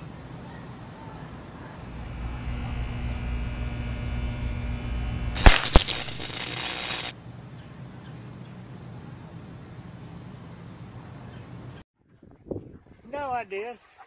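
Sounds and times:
electric buzz: 1.8s - 7.2s
electrical arcing cracks: 1.9s - 7.1s
hissing electrical crackle: 1.9s - 7.1s.

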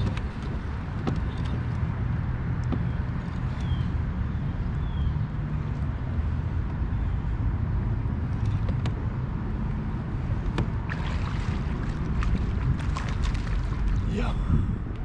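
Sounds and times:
low rumble on water: 9.4s - 15.0s.

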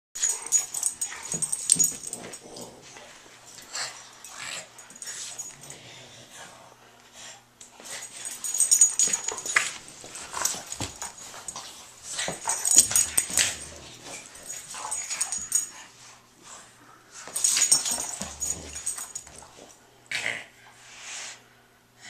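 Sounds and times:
dogs play-wrestling: 0.2s - 20.6s
dog vocal noises: 17.3s - 19.5s.

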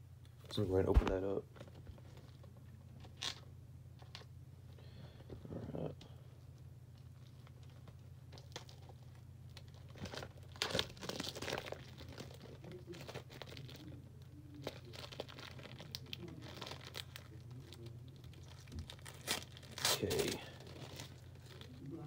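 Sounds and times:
steady low hum: 0.0s - 22.0s
packaging tearing and crinkling: 7.4s - 22.0s.

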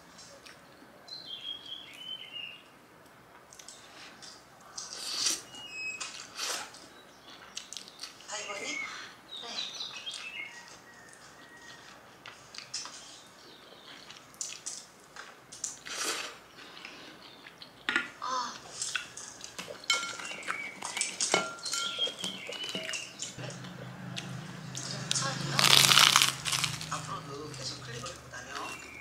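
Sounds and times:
cutlery clinking on ceramic bowl: 19.7s - 23.1s.

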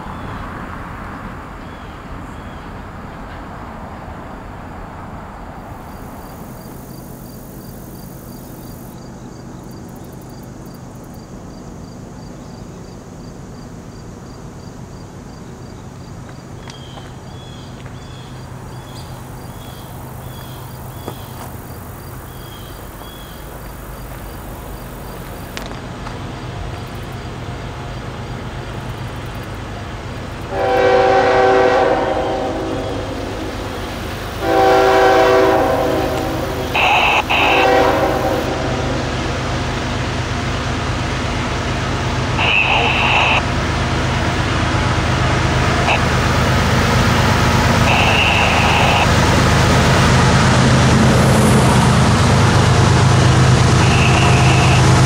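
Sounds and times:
distant train rumble: 0.0s - 55.0s
train horn blast: 30.5s - 39.5s, 45.7s - 55.0s.

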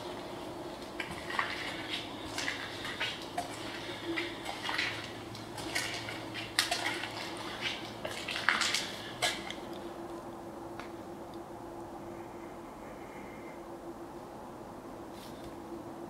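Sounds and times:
footsteps crunching on debris: 0.0s - 9.8s
faint steady hum: 0.0s - 16.0s.

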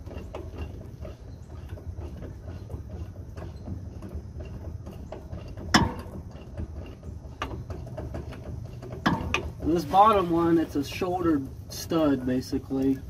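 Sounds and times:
steady low rumble: 0.0s - 13.0s
loud metal clank: 5.7s - 6.2s, 9.0s - 9.5s.

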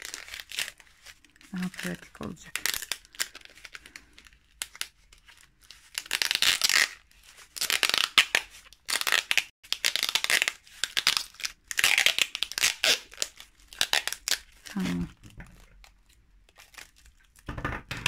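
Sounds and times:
packing tape pulled off roll: 2.6s - 15.9s.

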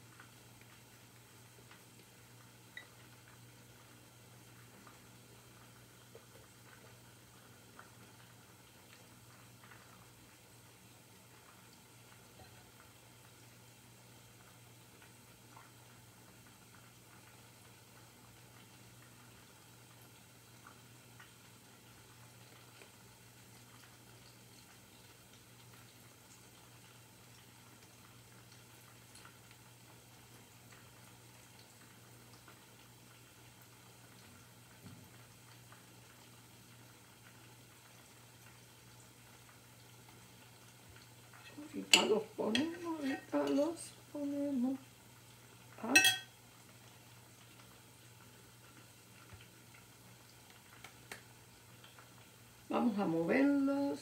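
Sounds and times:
faint crackles: 0.0s - 54.0s.

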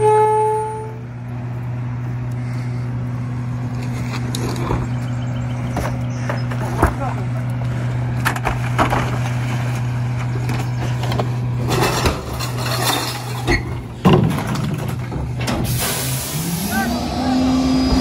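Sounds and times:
recyclables clattering and clinking: 5.6s - 15.8s.

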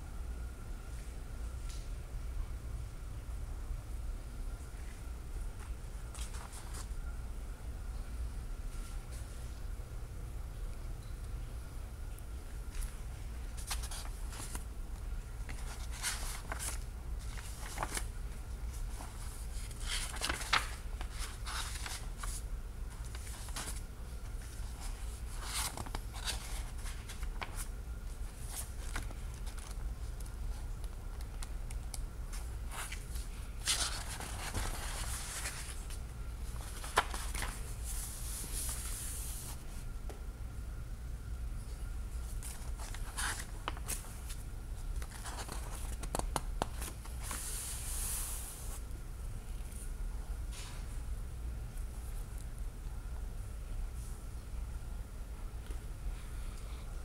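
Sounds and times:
steady low hum: 0.0s - 57.0s
book pages rustling and turning: 5.6s - 7.0s, 12.7s - 39.8s, 42.3s - 48.8s.

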